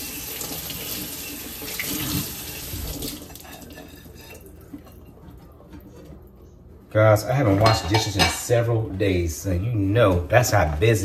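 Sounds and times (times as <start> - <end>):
faucet water running into sink: 0.0 - 4.5.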